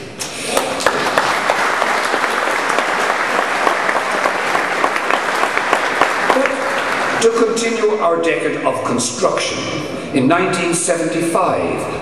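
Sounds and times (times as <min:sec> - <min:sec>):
large audience applauding: 0:00.2 - 0:07.5.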